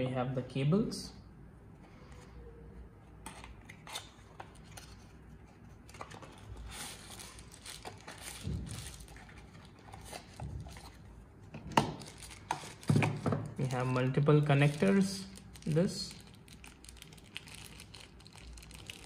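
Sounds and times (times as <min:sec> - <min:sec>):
tissue paper crinkling: 0:06.0 - 0:11.0, 0:14.6 - 0:19.0.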